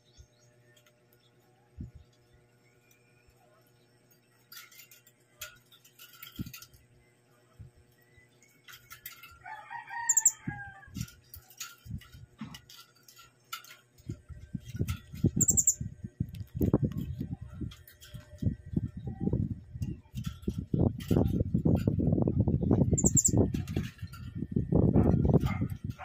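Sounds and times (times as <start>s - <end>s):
parrots high-pitched squeaky calls: 10.1s - 10.4s, 15.2s - 15.8s, 22.9s - 23.4s.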